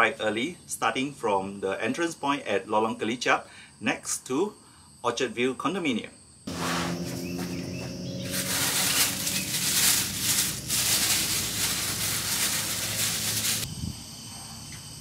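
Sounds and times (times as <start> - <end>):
insect chirring: 6.1 - 15.0
plastic bag crinkling: 6.5 - 13.7.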